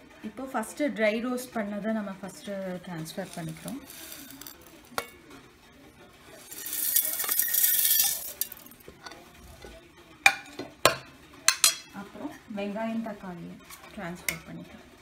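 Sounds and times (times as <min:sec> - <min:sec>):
grains pouring into steel jar: 0:03.2 - 0:04.8, 0:06.4 - 0:08.8.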